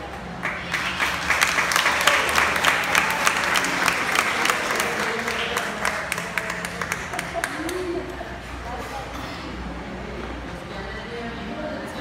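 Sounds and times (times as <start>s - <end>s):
audience applauding: 0.3s - 8.2s.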